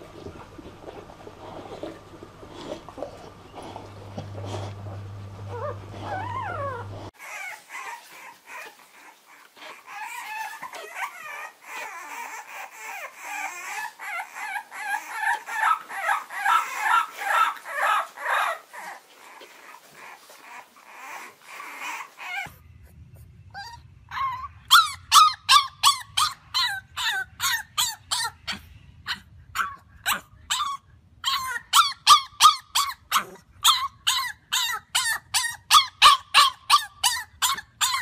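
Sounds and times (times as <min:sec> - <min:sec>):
low hum: 0:00.0 - 0:07.2
puppies squeaking: 0:05.4 - 0:22.6, 0:23.5 - 0:38.0
puppy howling and whimpering: 0:05.4 - 0:22.6, 0:23.5 - 0:38.0.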